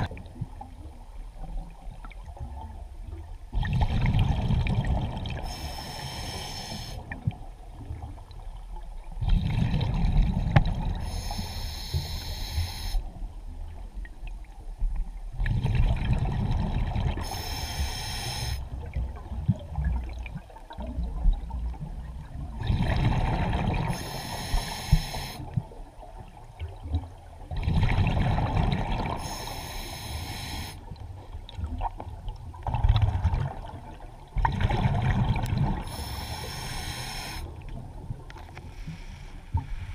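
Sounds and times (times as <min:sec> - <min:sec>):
regulator hissing inhale: 0:05.4 - 0:07.0, 0:11.0 - 0:13.1, 0:17.2 - 0:18.6, 0:23.9 - 0:25.5, 0:29.2 - 0:30.8, 0:35.8 - 0:37.5, 0:38.6 - 0:39.9.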